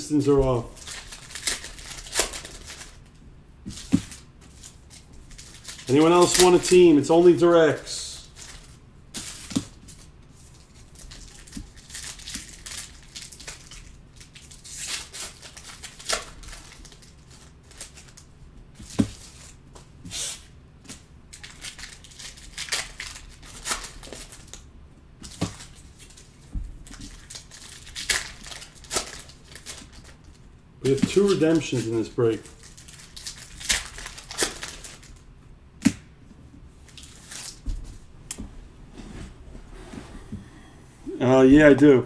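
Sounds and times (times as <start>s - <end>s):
foil wrappers tearing and crinkling: 0.2s - 3.0s, 3.8s - 6.9s, 8.1s - 19.5s, 20.9s - 24.6s, 25.2s - 35.2s, 36.9s - 37.6s.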